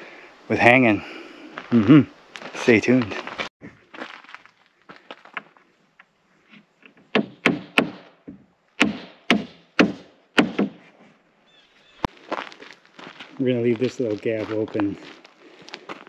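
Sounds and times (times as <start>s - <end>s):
hammer nailing into wood: 7.1s - 8.1s, 8.8s - 10.8s.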